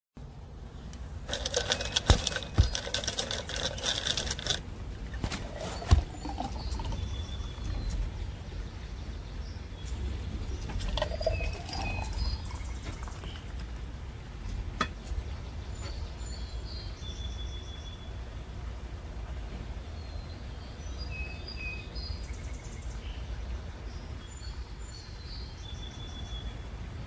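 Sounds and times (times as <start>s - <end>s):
low steady rumble: 0.2s - 20.9s
small birds chirping: 0.7s - 18.2s, 19.8s - 26.8s
rapid rattling bird chatter: 1.2s - 8.5s, 9.8s - 13.9s.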